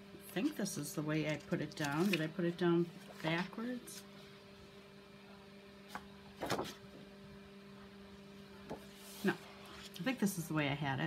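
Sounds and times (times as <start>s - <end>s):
steady low hum: 0.0s - 11.0s
paper rustle: 1.3s - 2.3s, 3.0s - 4.1s, 6.4s - 6.8s.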